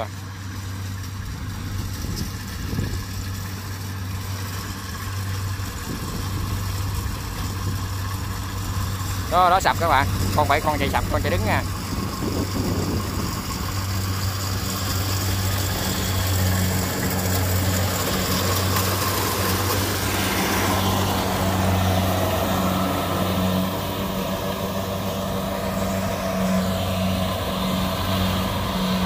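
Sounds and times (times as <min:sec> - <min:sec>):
combine harvester diesel engine: 0:00.0 - 0:29.0.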